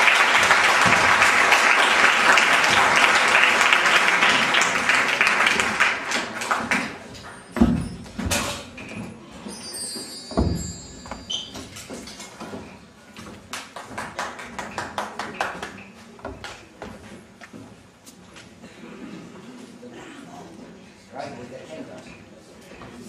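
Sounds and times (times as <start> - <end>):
audience applauding: 0.0 - 7.3, 13.5 - 16.0.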